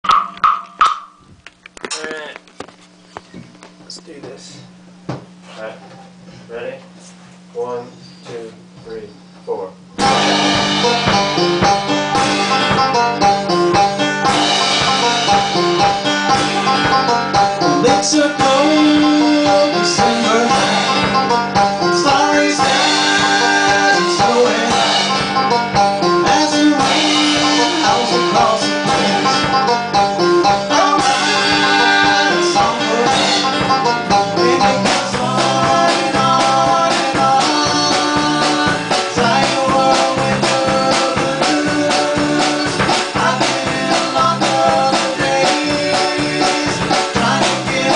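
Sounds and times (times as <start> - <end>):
acoustic band playing a song: 7.4 - 47.9.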